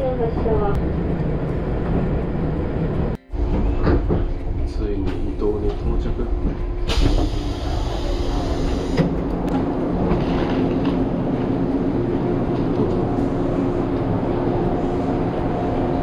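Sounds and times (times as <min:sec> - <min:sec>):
electric train humming: 0:00.0 - 0:16.0.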